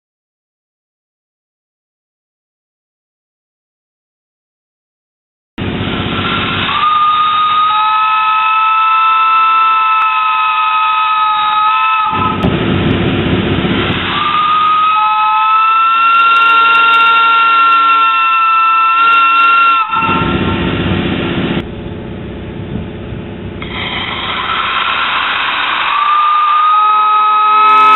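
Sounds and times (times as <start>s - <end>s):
steam whistle chords: 5.6s - 12.5s, 13.8s - 20.9s, 23.6s - 27.9s
rush of air: 12.2s - 14.8s.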